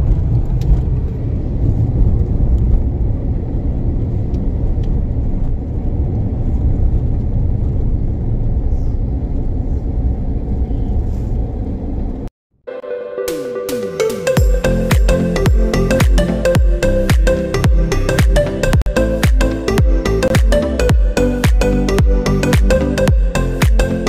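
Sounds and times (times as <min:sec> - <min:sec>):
car interior engine and tyre rumble: 0:00.0 - 0:12.3.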